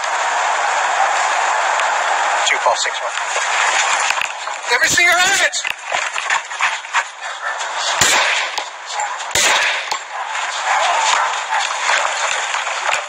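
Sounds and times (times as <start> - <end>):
handgun firing: 8.0 - 8.7, 9.3 - 10.0.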